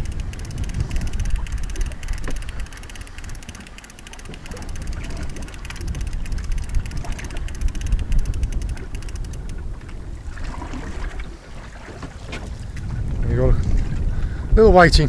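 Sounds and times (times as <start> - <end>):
fishing reel ticking: 0.0 - 9.8
wind buffeting microphone: 0.0 - 15.0.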